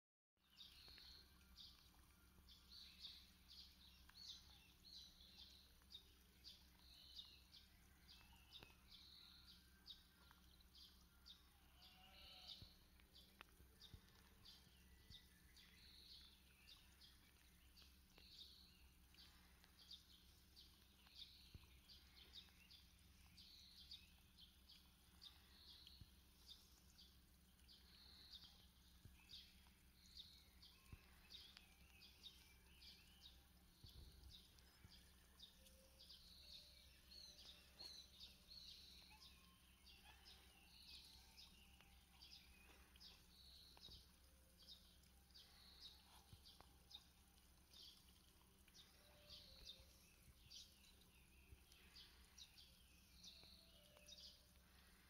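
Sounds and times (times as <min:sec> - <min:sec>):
small birds chirping: 0:00.4 - 0:55.0
low steady hum: 0:12.6 - 0:55.0.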